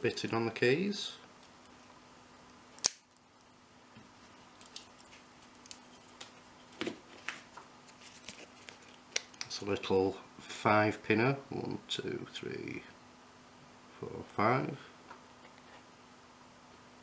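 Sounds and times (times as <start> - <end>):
padlock shackle snapping shut: 2.8 - 3.1.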